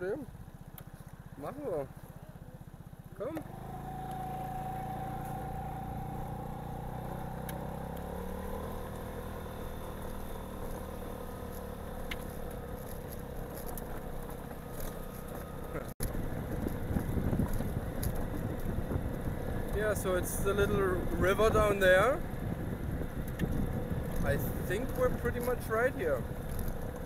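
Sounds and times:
rough engine rumble: 0.0s - 27.0s
scooter engine running: 0.0s - 27.0s.

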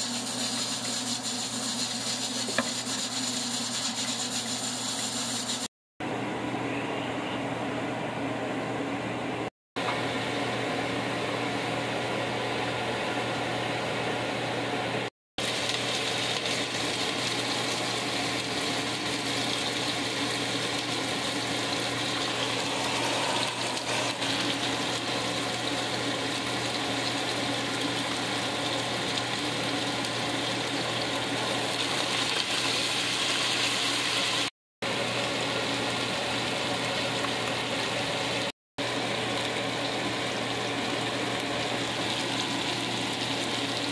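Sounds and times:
kitchen fan hum: 0.0s - 43.9s
meat frying in hot oil: 15.4s - 43.9s.

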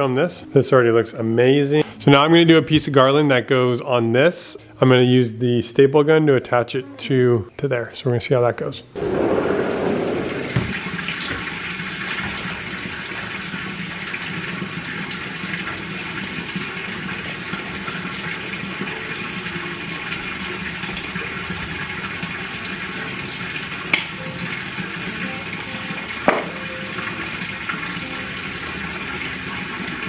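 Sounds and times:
fountain water splashing: 9.0s - 30.0s.

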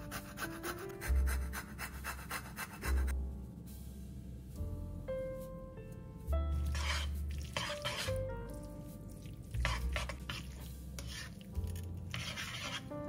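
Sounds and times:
background music: 0.0s - 13.0s
pasta swishing in pan: 6.5s - 12.9s.

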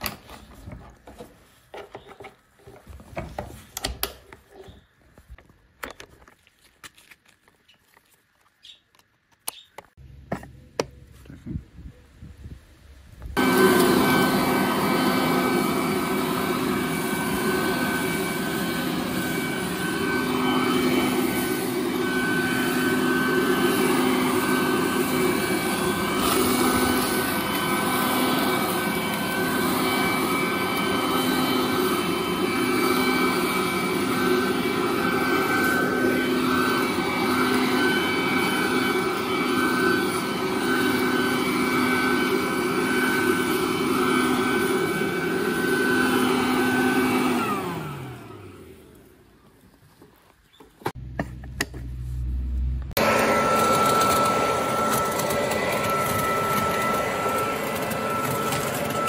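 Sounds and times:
leaf blower whining: 13.2s - 49.7s, 50.8s - 59.0s.

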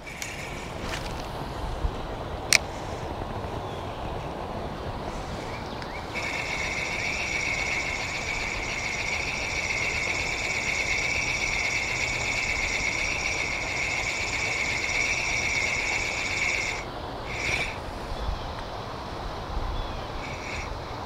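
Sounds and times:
fishing reel gear whir: 0.0s - 1.3s, 6.0s - 17.8s, 20.0s - 21.0s.

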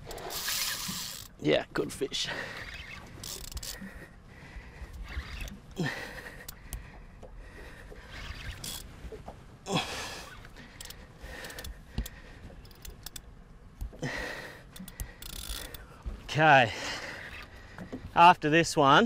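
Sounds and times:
fishing reel scraping and clicking: 0.1s - 1.4s, 2.5s - 3.9s, 4.9s - 5.6s, 8.1s - 8.9s, 10.8s - 13.2s, 14.7s - 15.9s.

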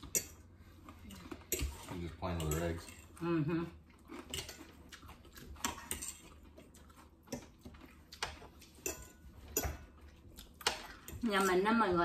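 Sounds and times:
forks clinking against plates: 0.0s - 0.4s, 1.5s - 3.2s, 5.6s - 6.5s, 8.2s - 9.9s.

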